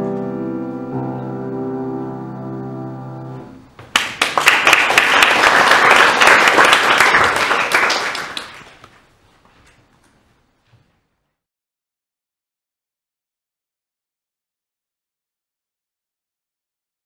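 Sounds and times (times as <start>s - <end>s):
grand piano chord ringing: 0.0s - 3.7s
audience applauding: 3.8s - 9.0s.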